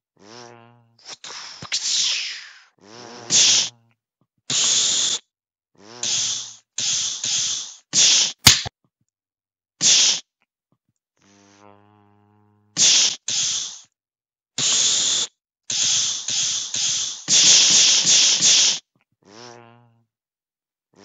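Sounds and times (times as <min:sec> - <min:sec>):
person making hissing mouth sounds: 0:00.2 - 0:03.8, 0:04.5 - 0:05.2, 0:05.8 - 0:08.7, 0:09.8 - 0:10.3, 0:12.8 - 0:14.0, 0:14.6 - 0:19.6
sharp click: 0:08.4 - 0:08.7.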